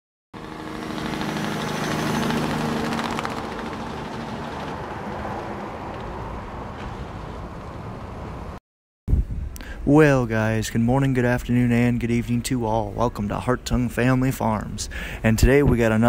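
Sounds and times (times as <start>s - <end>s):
engine humming: 0.4s - 8.6s.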